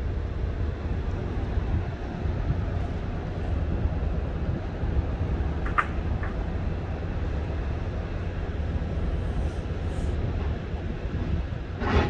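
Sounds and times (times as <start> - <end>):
wind buffeting microphone: 0.0 - 12.0
sea surf rushing: 9.6 - 12.0.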